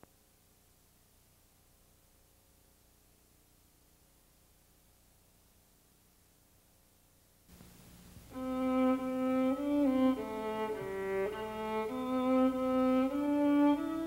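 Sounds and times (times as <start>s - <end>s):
faint hum: 0.0s - 14.0s
tape hiss: 0.0s - 14.0s
bowed-string melody: 8.3s - 14.0s.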